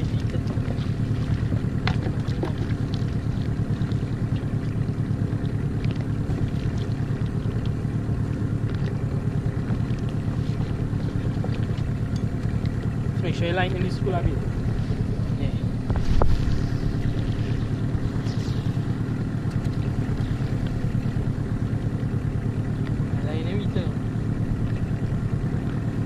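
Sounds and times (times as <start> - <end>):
outboard motor running: 0.0 - 26.0
wind buffeting microphone: 13.6 - 21.7.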